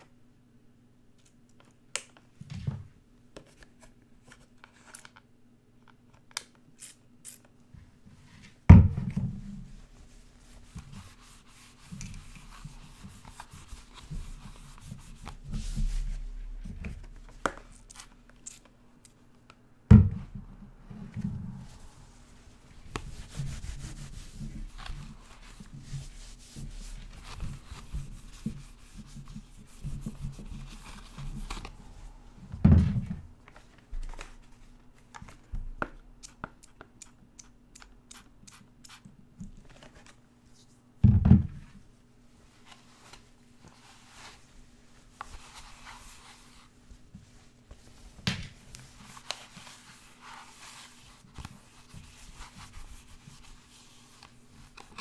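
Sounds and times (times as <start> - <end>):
cloth wiping plastic mask: 9.4 - 18.2, 20.8 - 32.4, 42.5 - 55.0.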